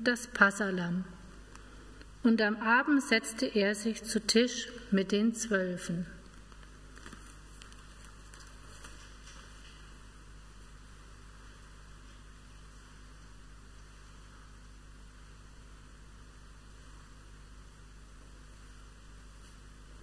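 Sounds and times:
low electrical hum: 0.0 - 20.0
steady hiss: 6.2 - 20.0.

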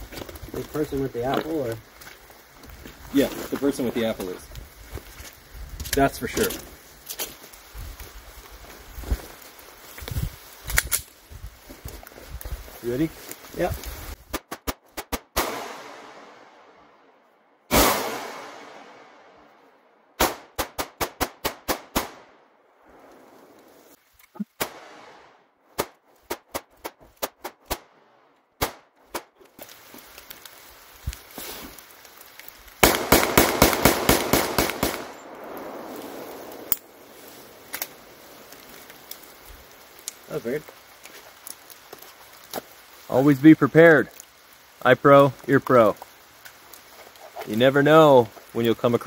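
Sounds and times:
gunshots: 14.3 - 16.4, 17.7 - 19.2, 20.2 - 22.3, 32.8 - 36.5.

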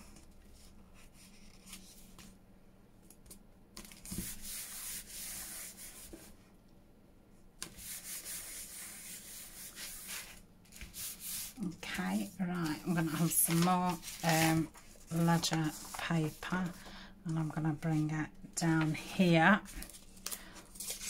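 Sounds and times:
paper rubbing on board: 4.1 - 6.3, 7.6 - 16.6.

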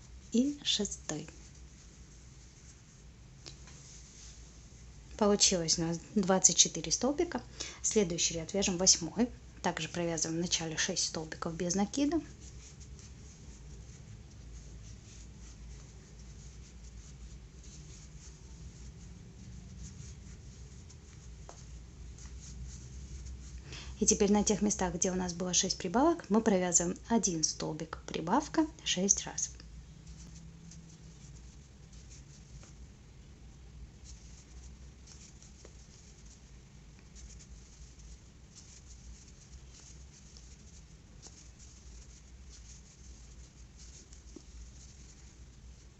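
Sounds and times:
crochet hook and yarn rustling: 0.0 - 45.9
low steady hum: 0.0 - 45.9.

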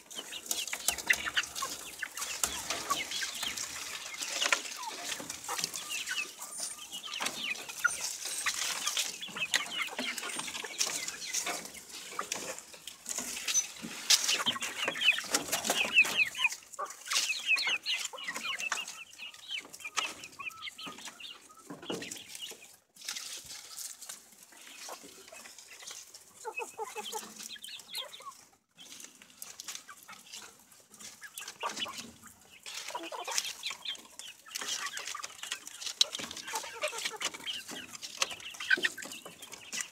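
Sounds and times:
chickens clucking and peeping: 0.0 - 39.9.

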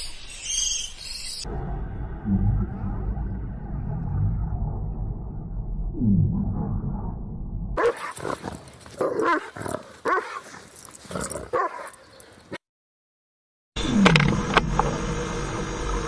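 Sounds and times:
low rumble: 1.4 - 7.8.

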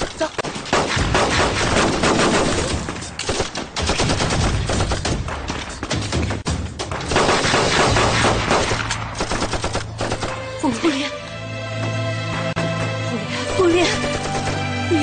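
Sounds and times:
heavy rapid gunfire: 0.4 - 5.4, 7.1 - 10.4.

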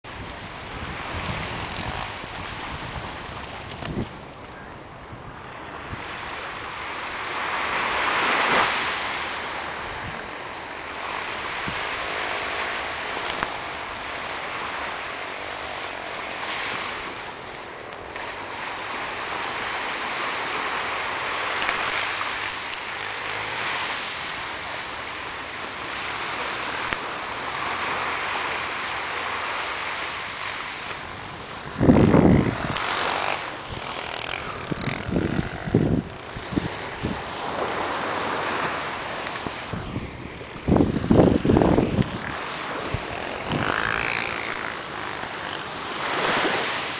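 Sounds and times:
sea waves breaking on a beach: 0.1 - 46.9.

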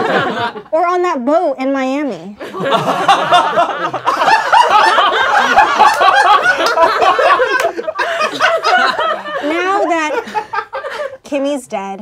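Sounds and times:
group of people laughing: 0.0 - 0.7, 2.4 - 11.2.

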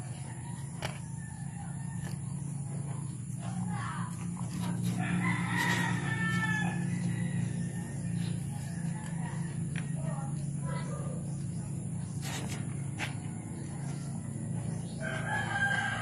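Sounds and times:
rooster crowing: 0.0 - 2.7, 4.6 - 10.3, 14.8 - 16.0
steady low hum: 0.0 - 16.0.

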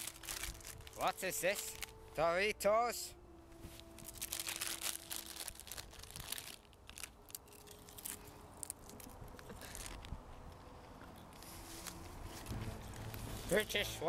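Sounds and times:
chip crunched and chewed: 0.0 - 2.0, 4.0 - 10.2
crisp packet crinkling: 0.0 - 2.0, 3.8 - 10.1.

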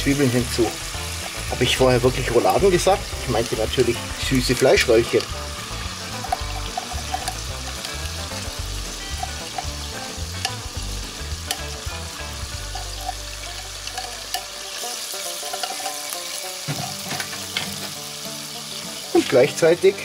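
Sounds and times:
onions sizzling in oil: 0.0 - 20.0
spatula scraping a pot: 12.7 - 17.1.

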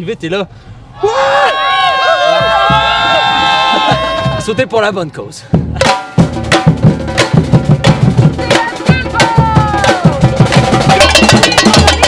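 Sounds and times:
percussion music with drums: 2.4 - 4.8, 5.5 - 12.0.

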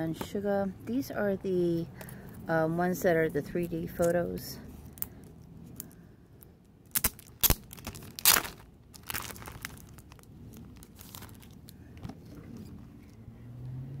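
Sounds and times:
plastic packaging crinkling: 6.9 - 11.9.

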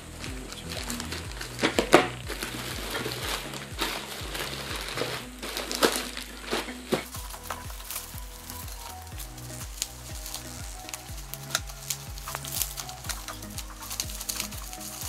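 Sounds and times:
background music: 0.0 - 15.0
plastic mailer and bubble wrap crinkling: 0.0 - 15.0.

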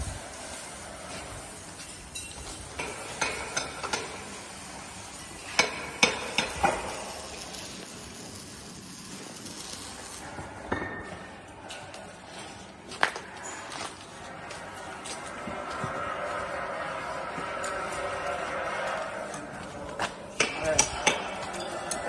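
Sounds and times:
background hiss: 0.0 - 10.6.

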